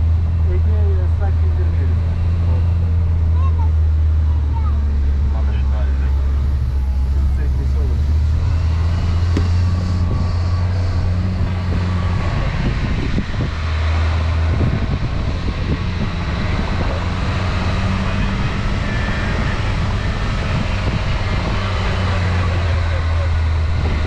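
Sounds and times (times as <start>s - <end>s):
car engine running: 0.0s - 24.0s
low bumps: 0.0s - 24.0s
wind noise: 1.9s - 24.0s
tyre noise: 9.2s - 10.2s.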